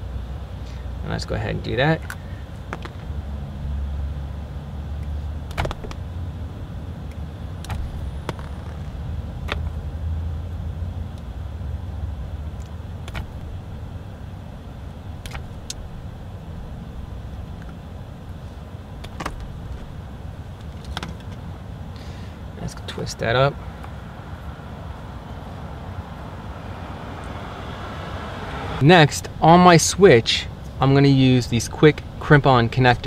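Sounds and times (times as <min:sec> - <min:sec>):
wire stripper clicking and snipping: 0:05.4 - 0:06.0, 0:07.1 - 0:09.8, 0:12.6 - 0:13.6, 0:15.2 - 0:15.9.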